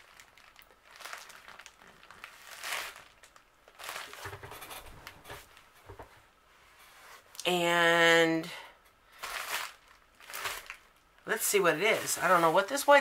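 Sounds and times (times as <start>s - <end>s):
plastic mailer bag crinkling: 0.0s - 5.6s, 9.2s - 13.0s.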